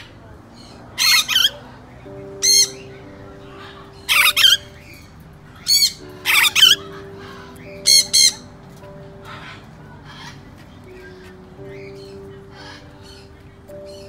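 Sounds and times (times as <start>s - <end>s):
soft background music: 0.0s - 14.0s
parrot squawking loudly: 1.0s - 1.6s, 3.6s - 4.7s, 5.6s - 8.4s.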